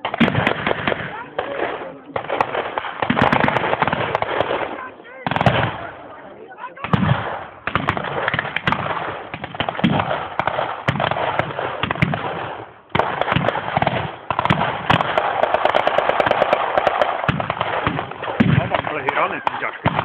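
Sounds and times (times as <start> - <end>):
rifles and machine guns firing: 0.0 - 6.1, 6.8 - 20.0.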